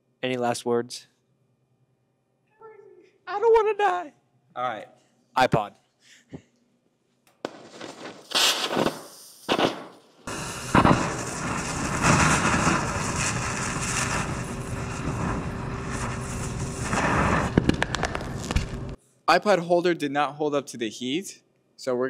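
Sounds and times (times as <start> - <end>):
laser burning with hiss and crackle: 7.5 - 19.0.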